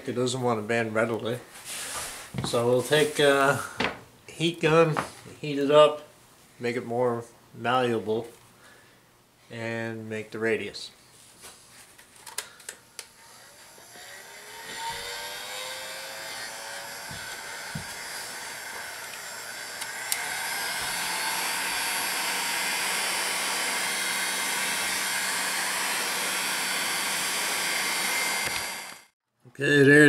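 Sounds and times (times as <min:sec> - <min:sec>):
heat gun fan whine: 0:12.0 - 0:29.2
heat gun switch click: 0:19.8 - 0:20.3, 0:28.4 - 0:28.7.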